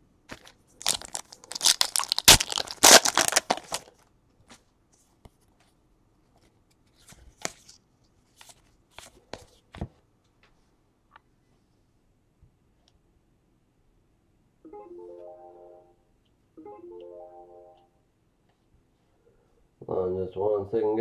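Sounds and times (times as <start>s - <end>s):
foil wrapper tearing and crinkling: 0.3s - 4.0s
cards being flipped through: 6.7s - 9.9s.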